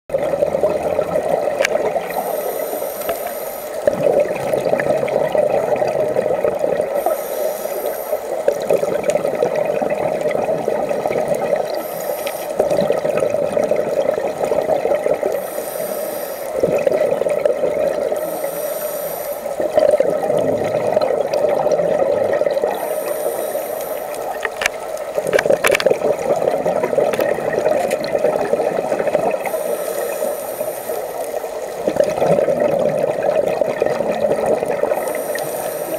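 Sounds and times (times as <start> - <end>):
constant bubbling: 0.1 - 35.9
rush of exhaled bubbles: 0.1 - 35.9
regulator inhale hiss: 2.1 - 3.9, 6.9 - 8.5, 11.7 - 12.7, 15.3 - 16.6, 18.1 - 19.6, 22.7 - 24.6, 29.4 - 31.8, 34.8 - 35.9
sharp clicks: 24.4 - 25.9.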